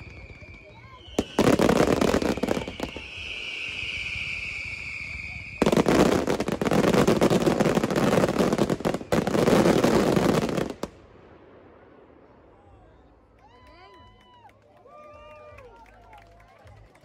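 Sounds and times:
firework whistle: 0.0 - 10.7
firework crackling bangs: 0.0 - 11.8.

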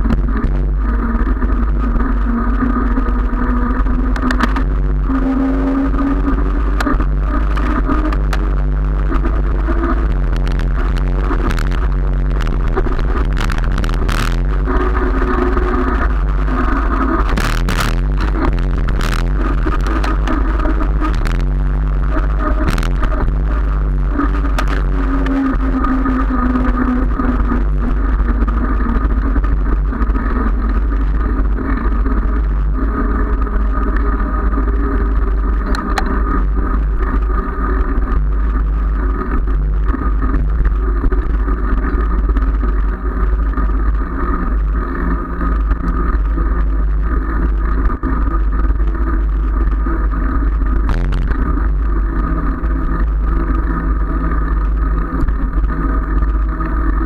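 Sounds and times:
tyre humming on asphalt: 0.0 - 57.0
wind rush on microphone: 0.0 - 57.0
sharp clicks: 35.6 - 36.2.

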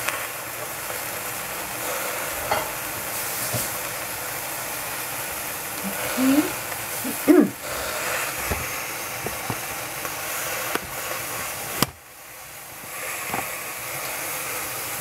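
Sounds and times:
gas stove burner hissing: 0.0 - 15.0
short voice sound: 5.8 - 7.6.

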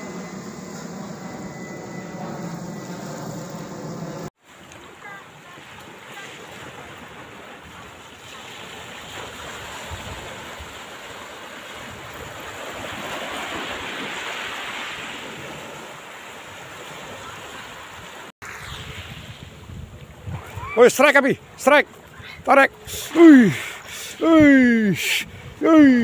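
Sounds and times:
waves washing onto pebbles: 4.4 - 20.6
wind buffeting microphone: 18.5 - 20.8, 25.2 - 25.7.

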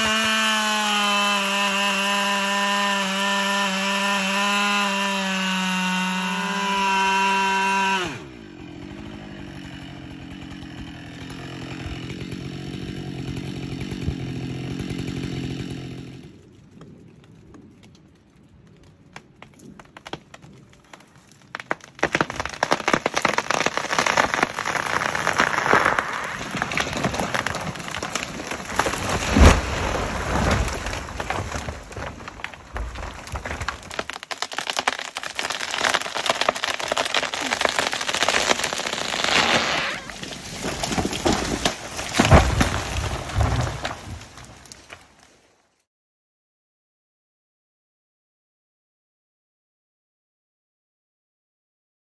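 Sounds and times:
branches crackling and snapping: 0.0 - 45.9
faint wood cracks: 16.4 - 45.8
tree trunk thudding on ground: 19.4 - 45.2.

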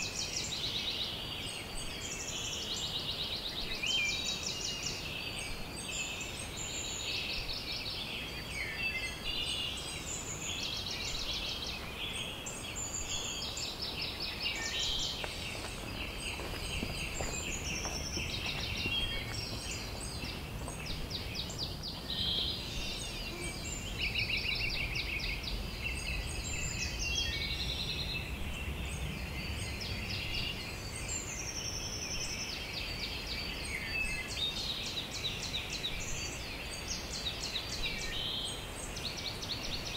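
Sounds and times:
birds singing and trilling: 0.0 - 39.9.

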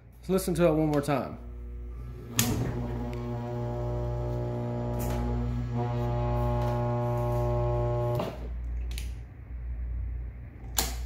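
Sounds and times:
washing machine motor humming: 1.2 - 8.6.

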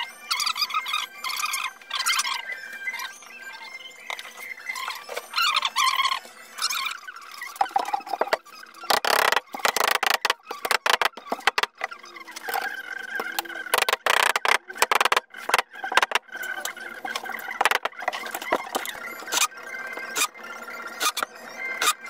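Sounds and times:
short squeaky tones: 0.3 - 22.0
rubber mallet tapping: 7.7 - 11.9, 13.2 - 16.2, 17.6 - 18.0.

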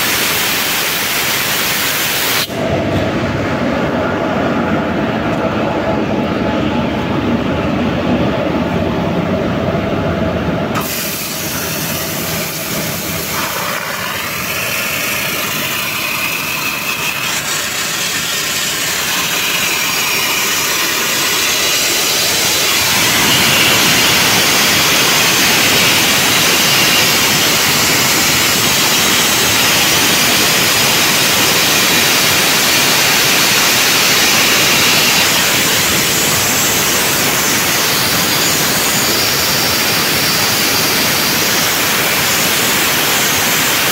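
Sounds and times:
pressurised drain hissing: 10.7 - 43.9.

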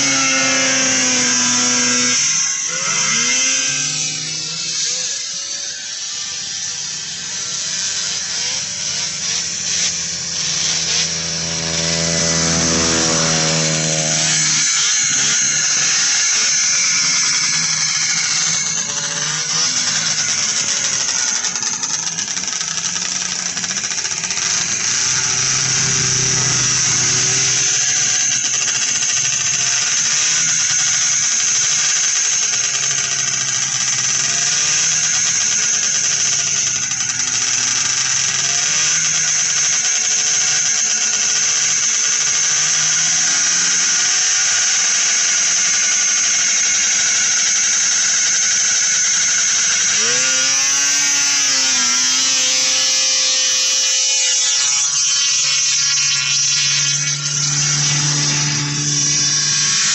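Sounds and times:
snowmobile engines buzzing: 9.6 - 17.8, 23.7 - 29.7, 49.4 - 59.9.

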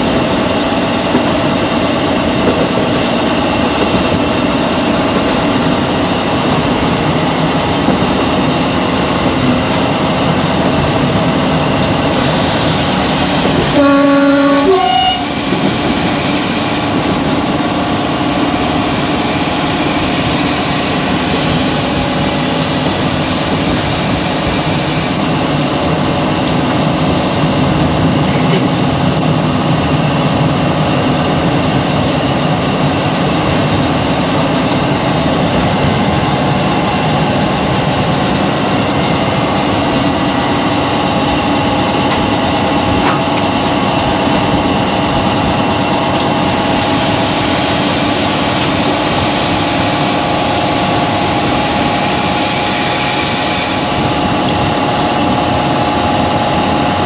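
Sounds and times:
locomotive engine drone: 0.0 - 57.0
hiss: 12.0 - 13.8, 15.0 - 25.9, 46.6 - 54.3.

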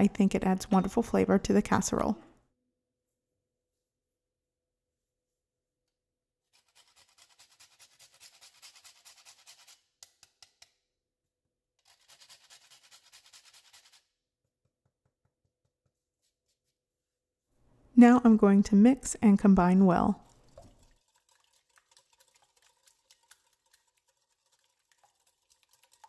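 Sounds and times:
nutmeg rasping on a grater: 6.5 - 9.8, 11.8 - 14.0.

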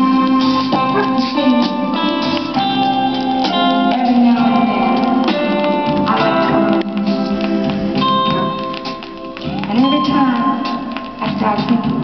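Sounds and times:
guitar music from vinyl record: 0.0 - 12.0.

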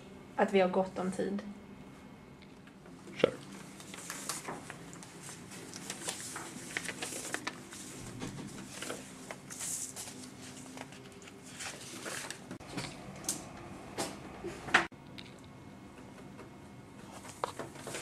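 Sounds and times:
paper rustling: 3.7 - 12.6, 17.1 - 18.0.

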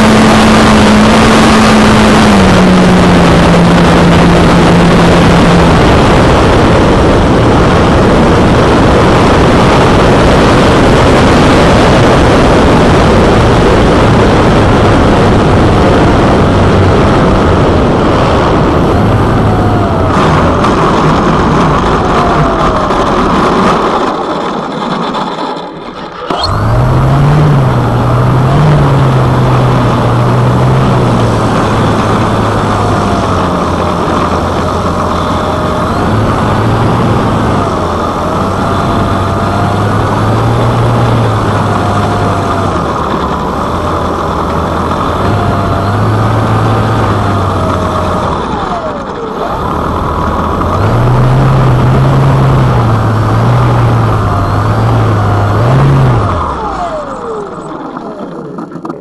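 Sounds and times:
electric motor turning propeller: 25.6 - 59.0.

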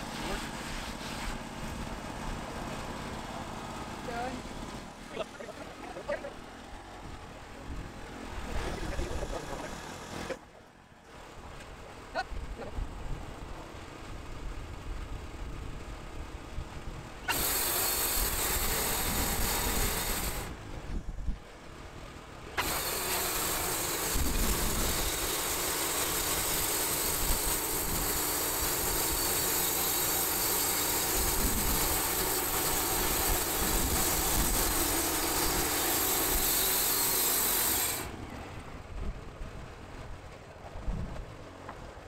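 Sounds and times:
saw blade hissing through log: 0.0 - 1.5, 17.2 - 20.5, 22.6 - 38.1
engine drone: 0.0 - 42.0.

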